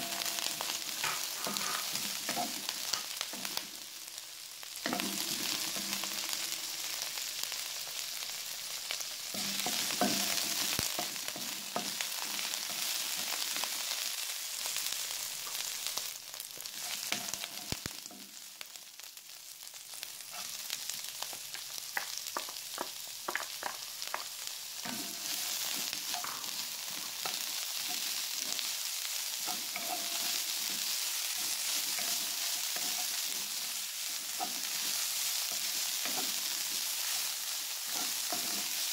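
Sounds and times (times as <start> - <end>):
spatula scraping and tapping pan: 0.0 - 3.6, 4.8 - 6.4, 9.3 - 13.4, 21.5 - 28.7, 29.4 - 37.2, 37.8 - 38.9
vegetables sizzling in hot oil: 0.0 - 38.9.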